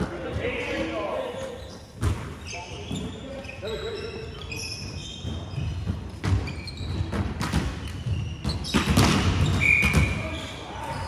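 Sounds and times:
shoe squeaks: 1.1s - 11.0s
basketball bouncing on court: 5.2s - 10.2s.

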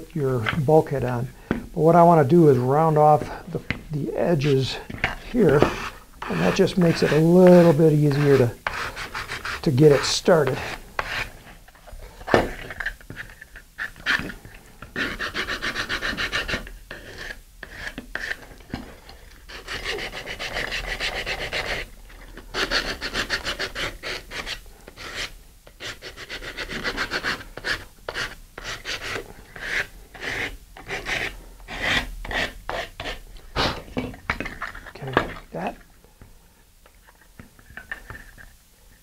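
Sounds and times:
sandpaper rubbing on wood: 4.4s - 11.3s, 15.0s - 18.4s, 19.5s - 21.9s, 22.5s - 33.7s.

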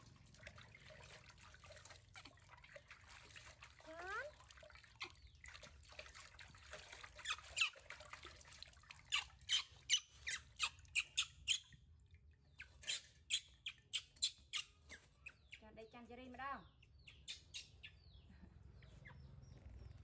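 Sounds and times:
water trickling into steel basin: 0.0s - 14.8s
baby monkey squeaking: 7.2s - 7.8s, 9.1s - 11.7s, 12.6s - 15.6s, 17.0s - 18.1s.

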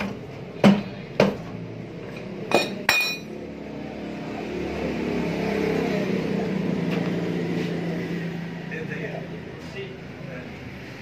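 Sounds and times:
sharp metal clanks: 2.5s - 3.3s.

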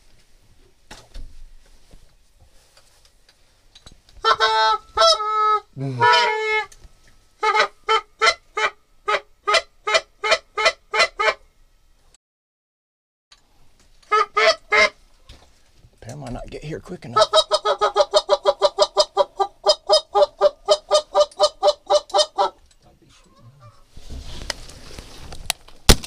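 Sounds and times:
goose call clucks: 4.2s - 6.7s, 7.4s - 11.4s, 14.1s - 15.0s, 17.1s - 23.8s
goose call honks: 4.2s - 6.7s.

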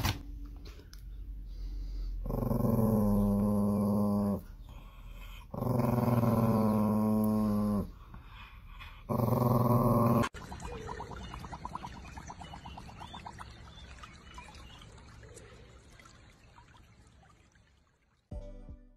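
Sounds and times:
small dog growly vocalization: 2.2s - 8.1s, 8.8s - 10.4s.

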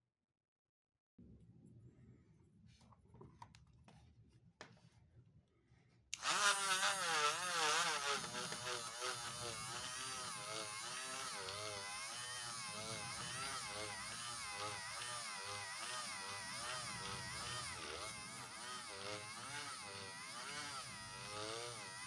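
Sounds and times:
rotary tool whine: 6.2s - 22.0s.

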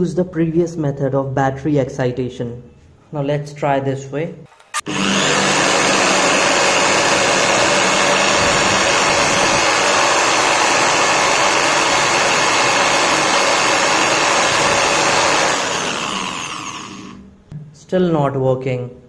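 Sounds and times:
electric drill whirring: 4.5s - 17.2s.

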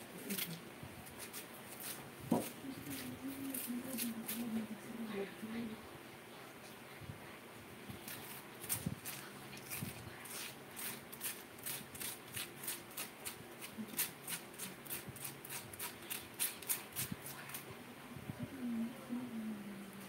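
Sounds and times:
metal spoon scraping potato: 1.2s - 4.6s, 8.1s - 17.7s.

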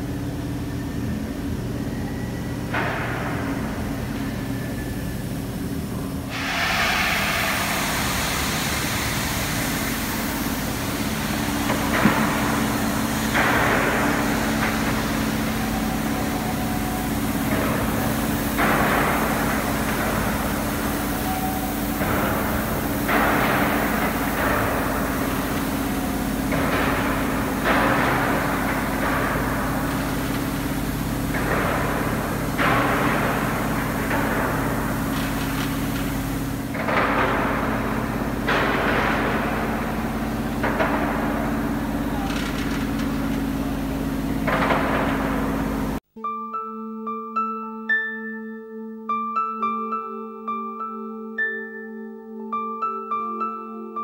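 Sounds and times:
hissing rush of valve gear: 3.6s - 44.5s.

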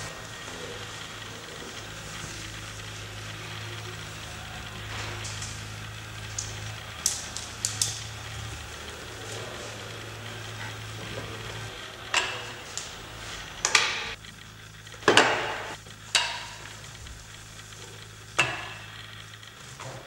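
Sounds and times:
steady low hum: 0.0s - 20.0s
tools knocking on workbench: 15.0s - 16.6s.

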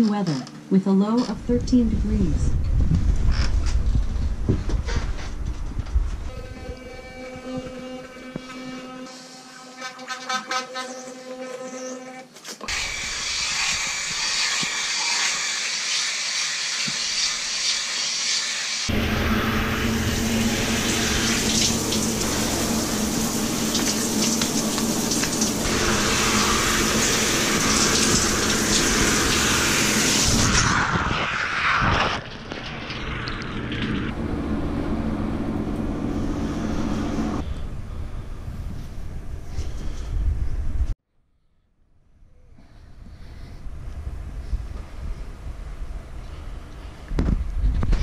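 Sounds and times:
razor rasping over stubble: 9.7s - 15.7s
shower spraying water: 12.6s - 34.1s
short falling whine: 18.9s - 27.4s, 29.7s - 39.0s.

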